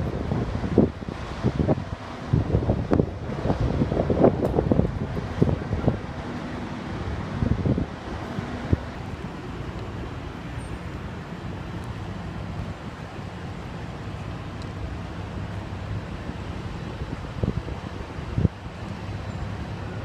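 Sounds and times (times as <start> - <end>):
vehicle engines rumbling: 0.0 - 20.0
wind noise on microphone: 0.0 - 20.0.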